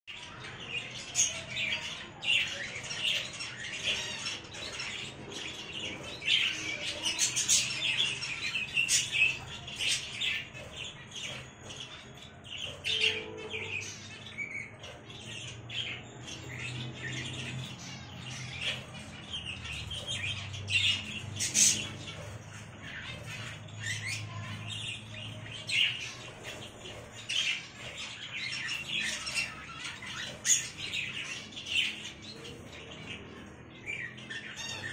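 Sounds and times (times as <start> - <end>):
lovebirds chirping and squawking: 0.1 - 34.9.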